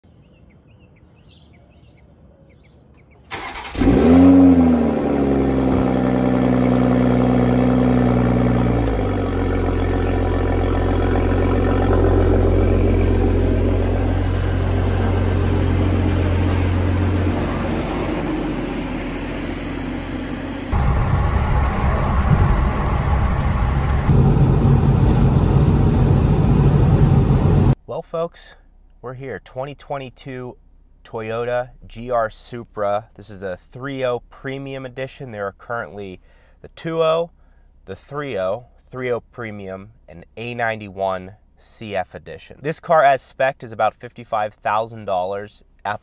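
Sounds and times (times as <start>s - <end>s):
car engine starting and idling: 3.3s - 27.8s.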